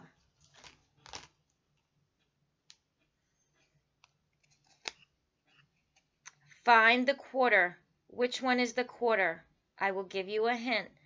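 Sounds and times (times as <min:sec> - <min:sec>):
soft handling rustle: 0:00.1 - 0:06.7.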